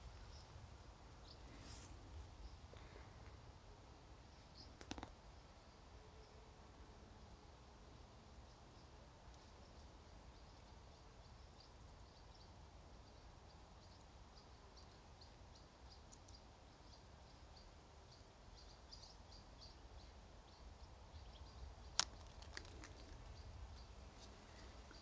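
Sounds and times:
seed pod snapping: 0:04.8 - 0:05.1, 0:21.9 - 0:23.3.

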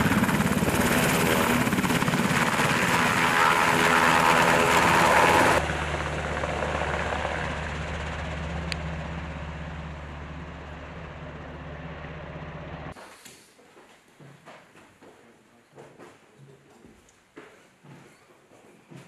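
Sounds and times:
helicopter rotor and engine: 0:00.0 - 0:13.0.

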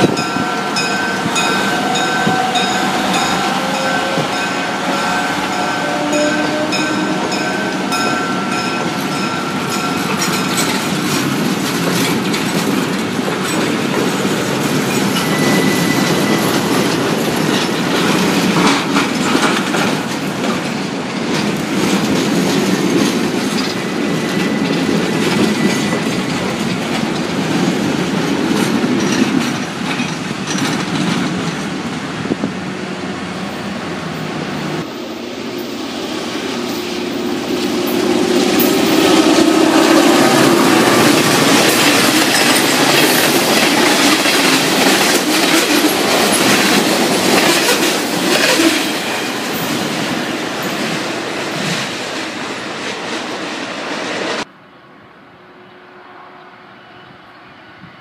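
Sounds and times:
high wheel squeal: 0:00.0 - 0:10.7, 0:14.9 - 0:17.1, 0:23.5 - 0:26.5
train wheels rumbling: 0:00.0 - 0:54.5
wheels clicking over rail joints: 0:06.3 - 0:32.0, 0:38.6 - 0:52.2.

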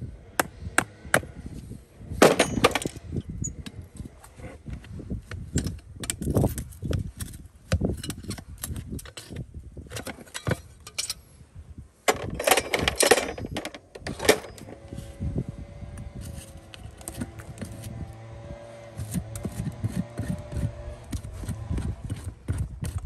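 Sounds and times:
metal clatter: 0:02.2 - 0:03.1, 0:12.1 - 0:14.9
metal clicks and clinks of pullers: 0:08.0 - 0:11.3, 0:12.1 - 0:14.9.

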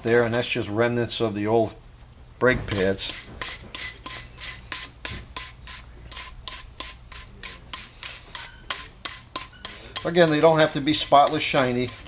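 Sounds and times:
wire brush scrubbing metal: 0:02.7 - 0:12.0.

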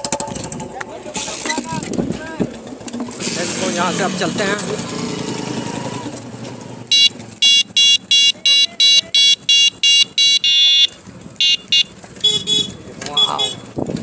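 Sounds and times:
road and wind noise: 0:00.0 - 0:14.0
electronic buzzer beeping: 0:06.9 - 0:12.6.

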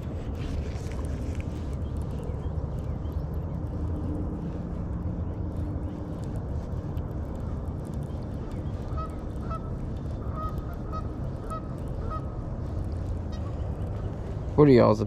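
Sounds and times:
low background rumble: 0:00.0 - 0:15.0
geese honking: 0:08.8 - 0:12.6, 0:13.2 - 0:13.7.

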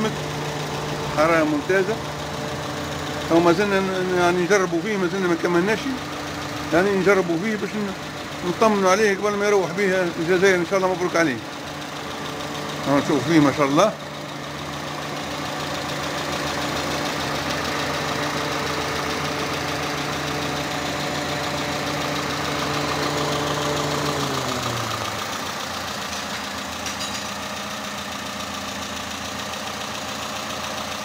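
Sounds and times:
car engine idling: 0:00.0 - 0:31.0.

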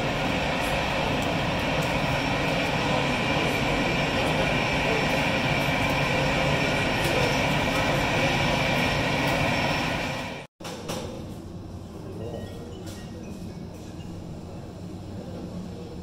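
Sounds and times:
jet engines taxiing: 0:00.0 - 0:10.5.

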